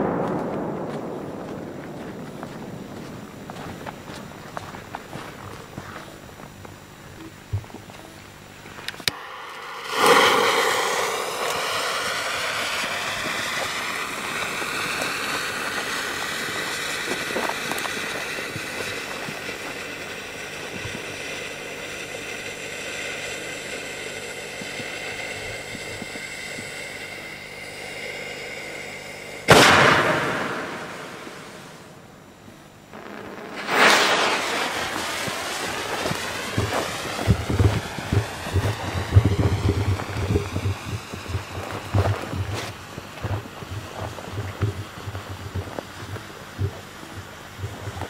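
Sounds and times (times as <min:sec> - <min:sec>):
firework bang: 0:00.0 - 0:06.0, 0:09.1 - 0:19.8, 0:24.6 - 0:32.0, 0:32.8 - 0:43.4
firework hissing: 0:00.0 - 0:48.0.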